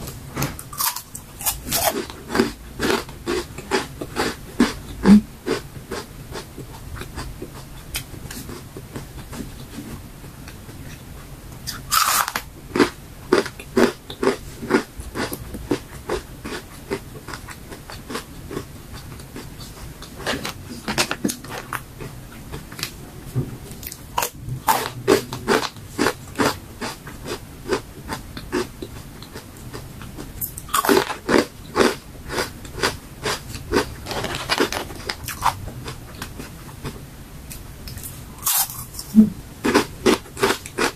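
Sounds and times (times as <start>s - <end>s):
crunchy chips being chewed: 0.4s - 9.7s, 11.7s - 23.0s, 23.8s - 40.9s.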